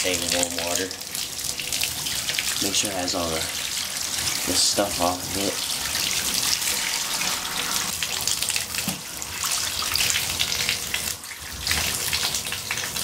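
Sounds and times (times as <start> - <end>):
bathtub faucet running: 0.0 - 13.0.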